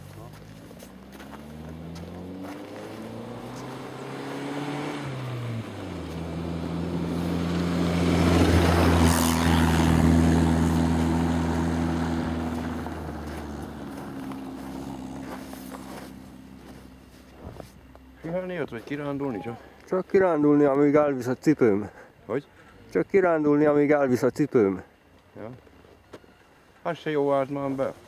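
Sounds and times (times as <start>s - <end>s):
vehicle engine driving past: 0.0s - 19.4s
road noise: 0.0s - 28.0s.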